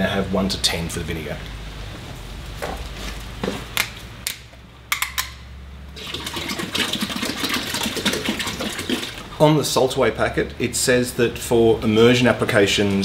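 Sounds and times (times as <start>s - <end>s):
liquid glugging from jug: 6.0s - 9.3s.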